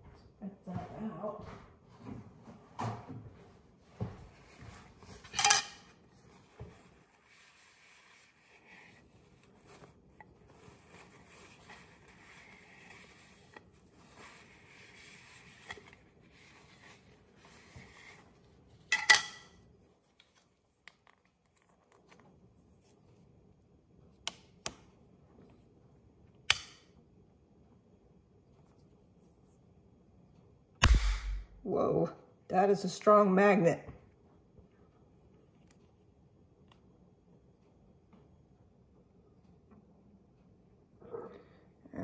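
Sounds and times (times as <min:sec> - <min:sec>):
soft rubbing and fiddling: 0:00.9 - 0:18.9, 0:19.6 - 0:24.1.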